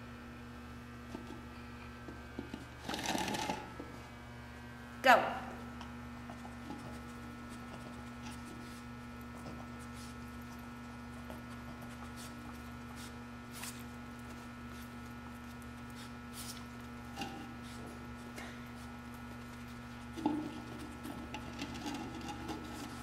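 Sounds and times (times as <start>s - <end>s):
electrical hum: 0.0s - 23.0s
dog sniffing: 6.3s - 21.2s.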